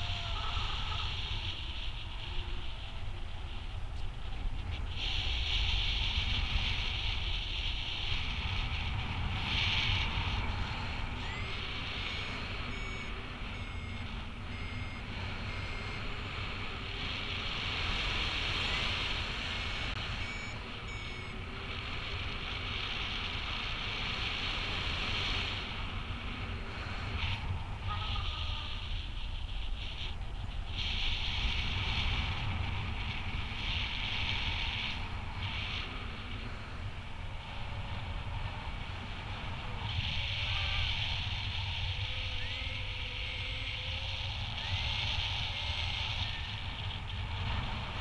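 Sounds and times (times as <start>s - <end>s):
wind rushing over microphone: 0.0s - 48.0s
variometer beeping: 11.2s - 16.4s, 19.6s - 21.5s.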